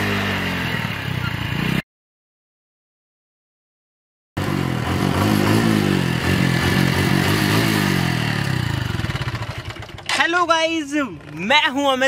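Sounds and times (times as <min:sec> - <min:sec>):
motorcycle engine revving: 0:00.0 - 0:01.8, 0:04.4 - 0:10.2.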